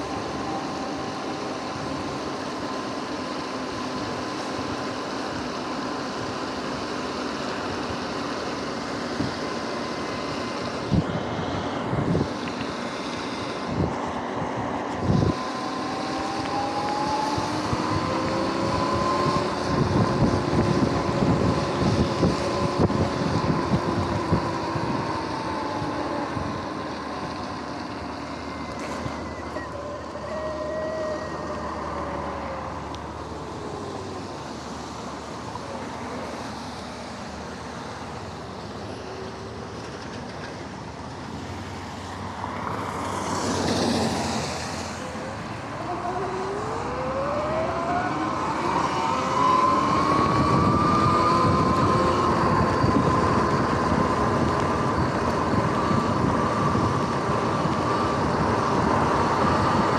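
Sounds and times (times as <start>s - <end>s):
tyres hissing on wet road: 0.0s - 59.9s
electric motor whine: 14.9s - 36.6s, 43.7s - 59.9s.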